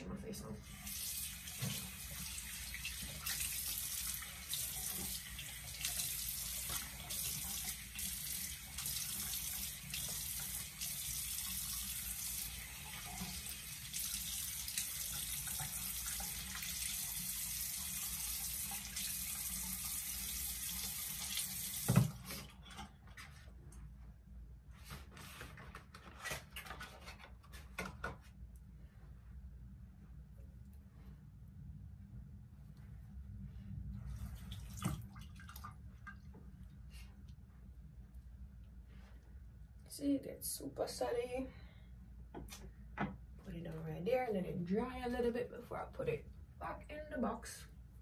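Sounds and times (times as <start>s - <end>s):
tap water running into sink: 0.7s - 22.5s
water splashing: 34.1s - 36.4s.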